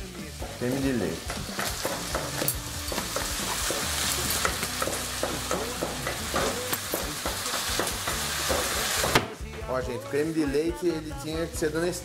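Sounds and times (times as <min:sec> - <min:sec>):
meat sizzling in a pan: 0:00.0 - 0:09.2.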